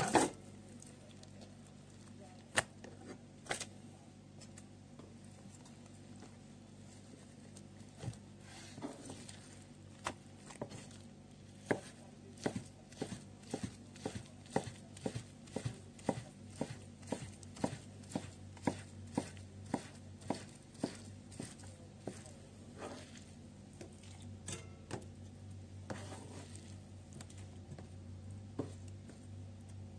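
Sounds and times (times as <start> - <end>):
knife slicing on cutting board: 11.6 - 23.2, 25.9 - 26.6.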